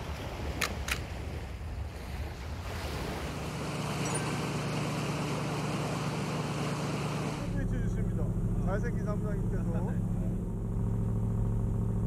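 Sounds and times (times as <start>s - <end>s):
surf washing on beach: 0.0s - 7.6s
boat engine hum: 0.0s - 12.0s
boat wake rushing: 0.0s - 12.0s.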